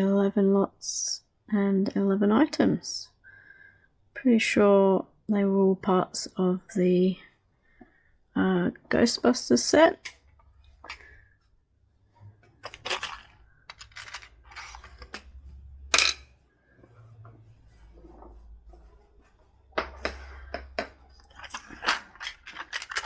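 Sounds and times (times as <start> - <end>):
plastic parts clicking and rattling: 12.5 - 16.2, 20.0 - 23.0.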